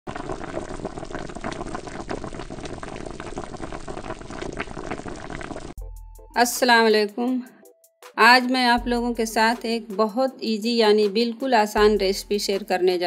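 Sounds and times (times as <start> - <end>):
curry bubbling in a pan: 0.0 - 5.8.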